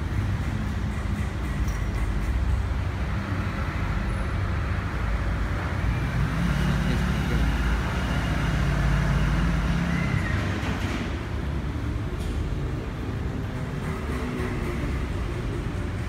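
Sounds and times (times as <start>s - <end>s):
diesel engine idling: 0.0s - 10.4s.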